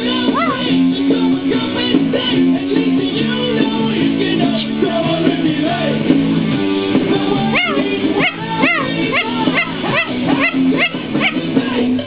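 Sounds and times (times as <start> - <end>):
music playing: 0.0 - 12.0
corella calling: 0.2 - 0.8, 7.4 - 11.7.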